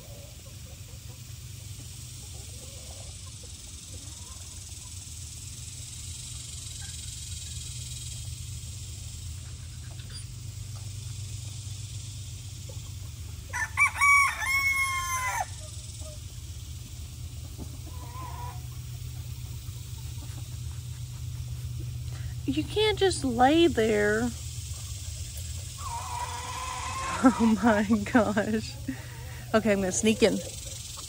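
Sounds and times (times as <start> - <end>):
steady low rumble: 3.2 - 13.6, 14.9 - 31.0
rooster crowing: 13.5 - 15.6, 25.8 - 27.7.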